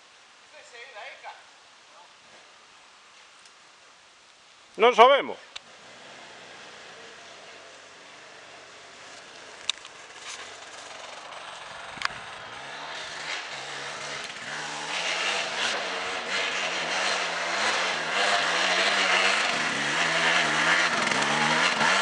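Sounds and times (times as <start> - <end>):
dirt bike engine revving: 5.6 - 22.0.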